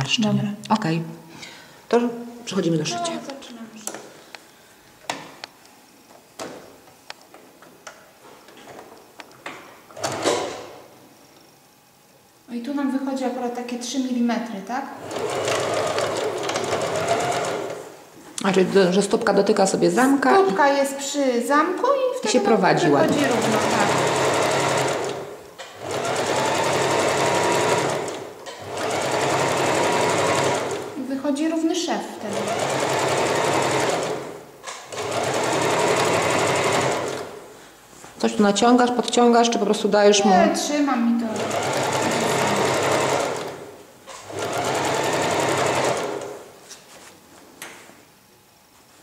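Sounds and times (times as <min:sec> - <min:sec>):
electric sewing machine stitching: 0:09.9 - 0:10.7, 0:15.0 - 0:17.9, 0:23.0 - 0:31.0, 0:32.2 - 0:37.4, 0:41.3 - 0:46.5.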